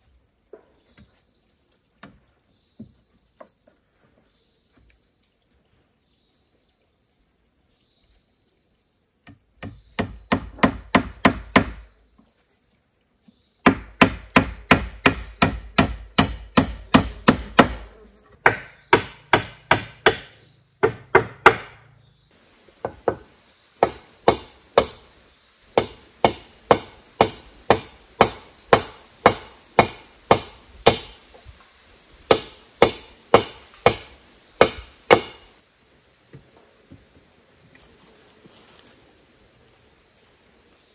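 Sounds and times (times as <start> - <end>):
hammer striking wood: 9.3 - 11.9, 13.6 - 21.8, 22.8 - 25.1, 25.8 - 31.2, 32.3 - 35.5.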